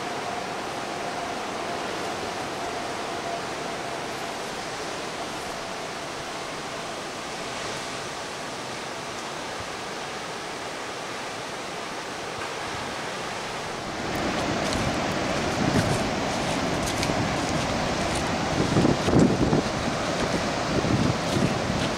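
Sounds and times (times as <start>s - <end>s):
ocean surf breaking: 0.0s - 21.9s
wind buffeting microphone: 12.8s - 21.9s.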